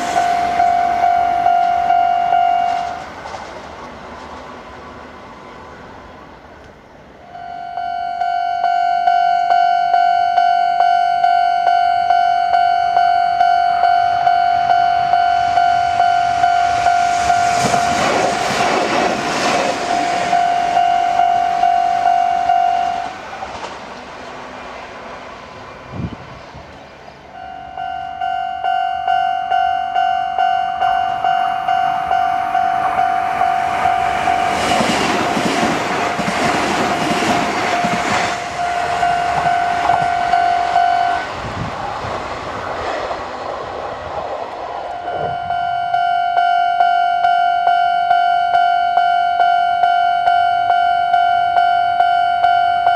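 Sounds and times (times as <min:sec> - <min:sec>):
level crossing warning bell: 0:00.0 - 0:03.1, 0:07.2 - 0:23.2, 0:27.3 - 0:41.4, 0:44.9 - 0:52.9
trains rumbling and clattering: 0:00.0 - 0:52.9.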